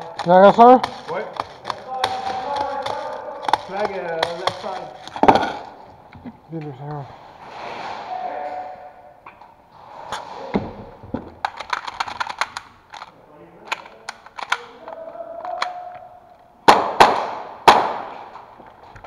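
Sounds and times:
loud echoing bangs: 16.6s - 18.4s
airsoft gun shots: 16.7s - 18.2s.

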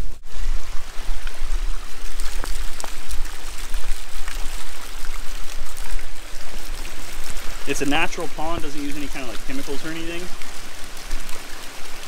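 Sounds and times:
splashing water: 0.0s - 12.0s.

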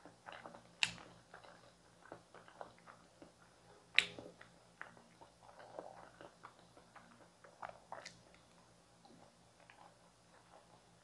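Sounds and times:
wet chewing: 0.0s - 11.0s
lip smacks: 0.2s - 10.7s.

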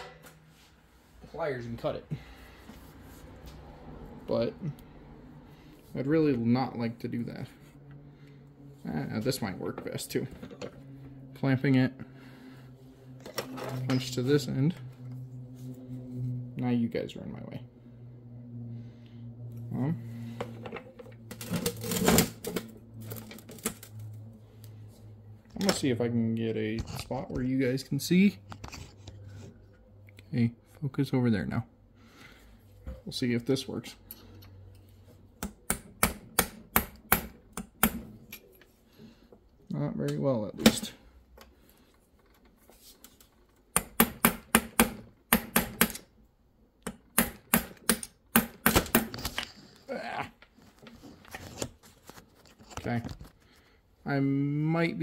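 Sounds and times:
low electrical hum: 0.0s - 55.0s
hammer striking steel punch: 43.8s - 46.0s, 47.1s - 49.1s.

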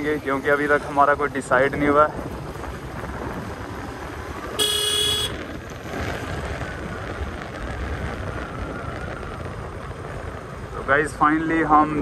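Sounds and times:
wind on microphone: 1.3s - 12.0s
motorcycle engine: 2.1s - 11.0s
horn beep: 4.6s - 5.4s.

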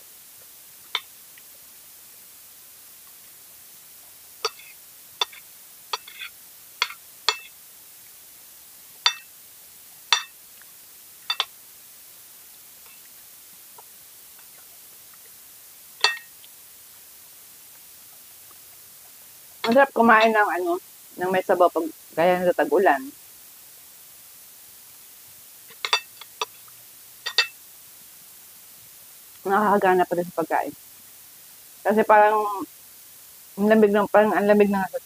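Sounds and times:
cutlery clinking on a plate: 4.4s - 5.4s, 6.0s - 7.5s, 9.1s - 9.3s, 10.1s - 10.3s, 11.3s - 11.5s, 16.0s - 16.3s, 25.7s - 26.6s, 27.3s - 27.6s.

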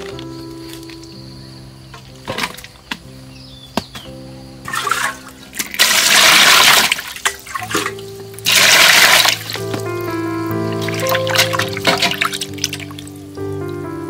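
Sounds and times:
background music with held notes: 0.0s - 14.0s
water splashing into metal basin: 2.0s - 3.0s, 4.6s - 9.9s, 10.8s - 13.2s.

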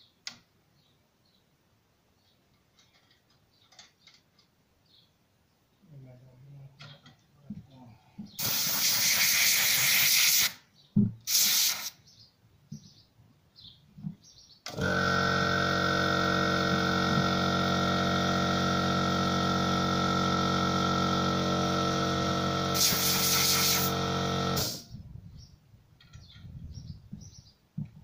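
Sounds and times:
air compressor running with a whine: 8.4s - 10.6s, 14.7s - 25.0s
compressed air hissing: 8.4s - 10.6s, 11.3s - 12.0s, 22.7s - 24.9s.

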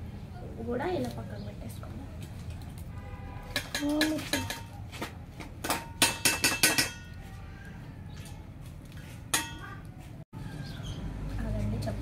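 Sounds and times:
metal utensils clinking on steel bowls: 2.2s - 4.9s, 5.6s - 7.3s, 8.1s - 9.9s.

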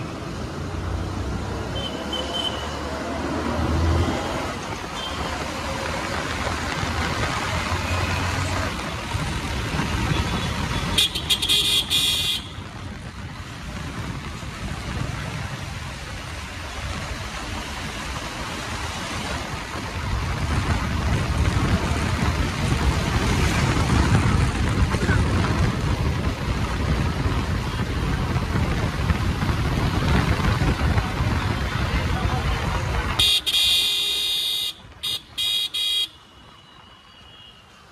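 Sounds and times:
motorcycle engine and road noise: 0.0s - 37.9s
vehicle horn toot: 33.2s - 37.6s.

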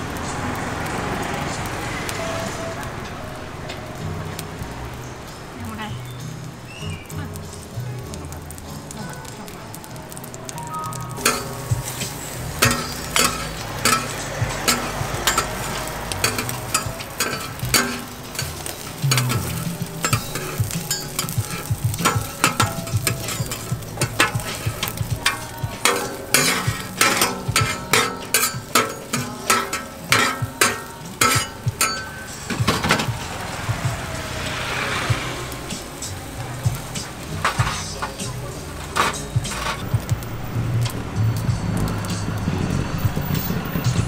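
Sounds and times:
meat sizzling in a pan: 4.0s - 44.0s
metal spatula scraping pan: 10.9s - 33.7s, 38.8s - 39.9s.

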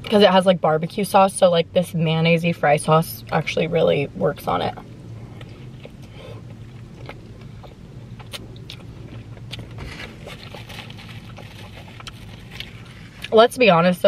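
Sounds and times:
low steady hum: 0.0s - 14.0s
chewing with wet mouth sounds: 5.0s - 13.4s.

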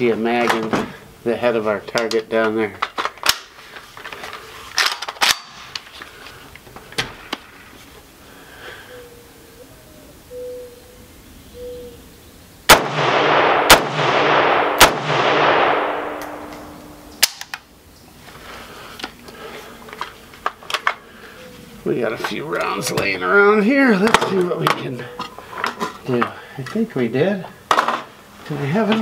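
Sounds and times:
gunshots: 12.7s - 17.4s.

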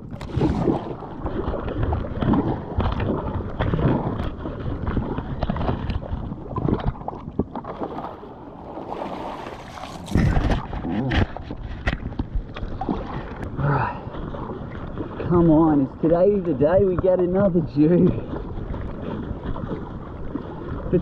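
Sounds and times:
kayak paddle strokes in water: 0.0s - 21.0s
water sloshing along hull: 0.0s - 21.0s.

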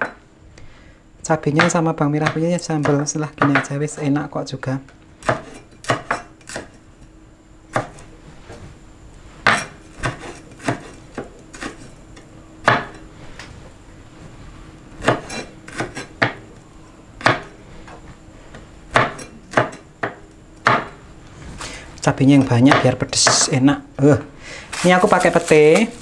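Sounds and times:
cleaver chopping on wooden board: 7.7s - 8.0s, 9.5s - 11.8s, 12.6s - 13.0s, 17.2s - 17.5s, 18.9s - 21.0s.

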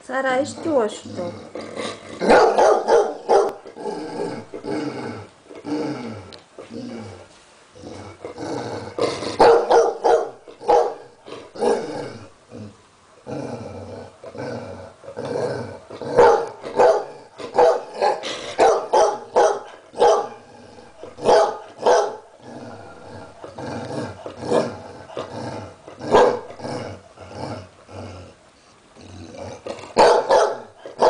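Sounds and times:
dog barking: 2.3s - 3.6s, 9.4s - 11.0s, 16.2s - 20.4s, 21.2s - 22.2s, 26.1s - 26.5s, 30.0s - 31.0s.

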